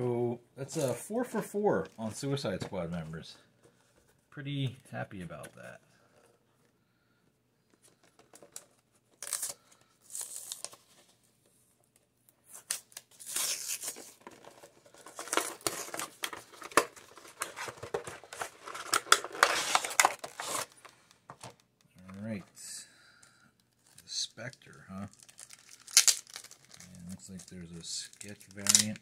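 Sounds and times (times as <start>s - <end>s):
packaging tearing and crinkling: 8.5s - 10.9s, 12.6s - 20.9s, 25.0s - 29.0s.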